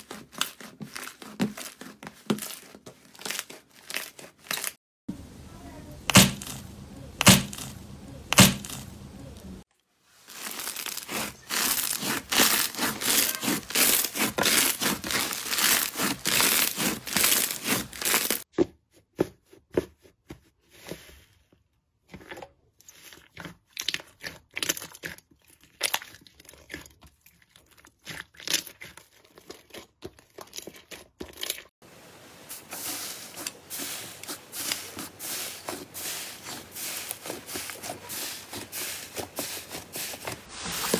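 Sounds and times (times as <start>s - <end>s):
slime crackling and popping: 10.4s - 18.4s.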